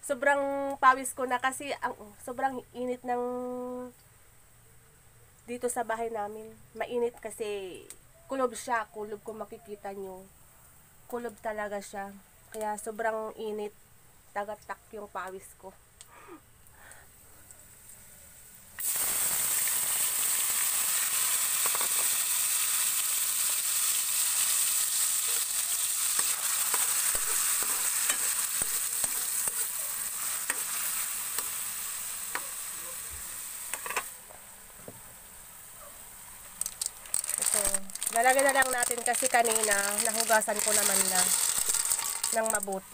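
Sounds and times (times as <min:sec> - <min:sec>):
tomatoes sizzling in oil: 0:17.7 - 0:42.9
metal spoon scraping wok: 0:25.4 - 0:31.6, 0:40.6 - 0:42.6.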